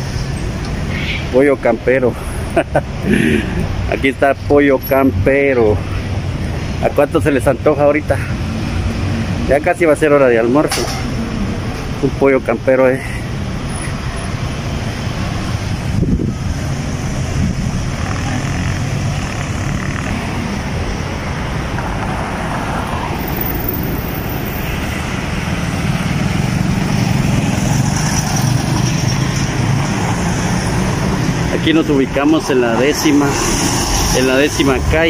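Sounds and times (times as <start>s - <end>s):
bus running: 0.0s - 35.0s
cars: 0.0s - 35.0s
motorcycles: 0.0s - 35.0s.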